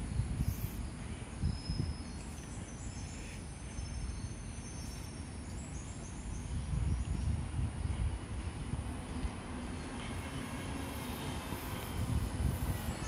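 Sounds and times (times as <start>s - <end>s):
faint bird chirps: 0.3s - 7.3s.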